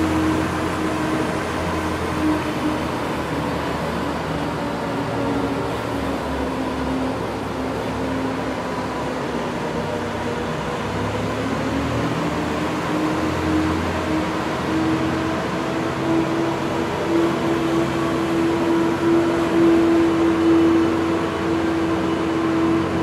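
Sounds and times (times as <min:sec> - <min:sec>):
ice resurfacer engine hum: 0:00.0 - 0:23.0
noisy water wash: 0:00.0 - 0:23.0.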